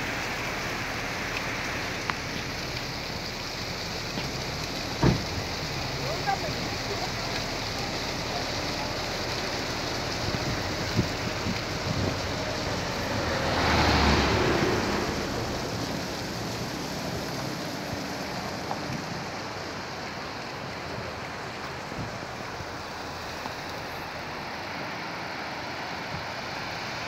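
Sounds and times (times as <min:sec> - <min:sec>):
rushing mountain water: 0:00.0 - 0:27.0
wind: 0:00.0 - 0:27.0.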